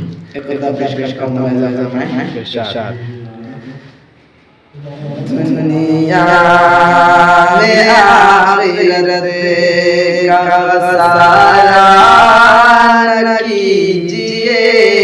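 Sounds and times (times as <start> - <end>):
man chanting melodically: 4.7 - 15.0.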